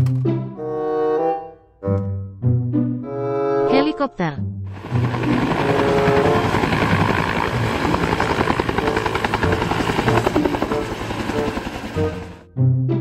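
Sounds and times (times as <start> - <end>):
turbine roar: 4.7 - 12.4
helicopter rotor beating: 4.7 - 12.5.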